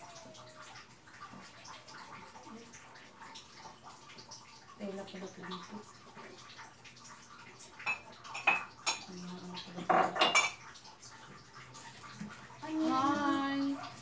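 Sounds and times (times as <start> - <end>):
kitchenware clattering: 7.8 - 10.8.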